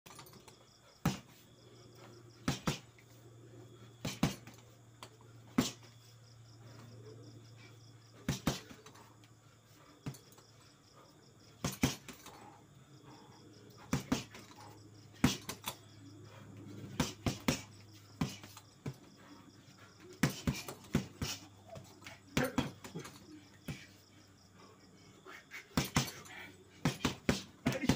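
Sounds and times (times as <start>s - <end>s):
punches on a punching bag: 1.0s - 1.4s, 2.4s - 3.0s, 4.0s - 4.6s, 5.5s - 5.9s, 8.2s - 9.0s, 11.6s - 12.5s, 13.8s - 15.7s, 16.8s - 19.1s, 20.1s - 23.9s, 25.7s - 27.9s.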